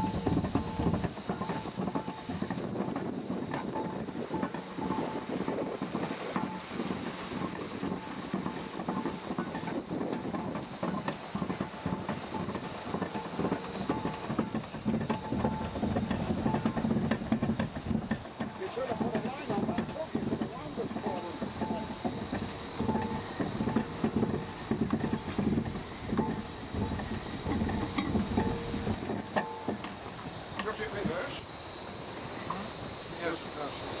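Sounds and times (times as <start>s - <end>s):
steam engine chuffing: 0.0s - 34.0s
steam hissing: 0.0s - 34.0s.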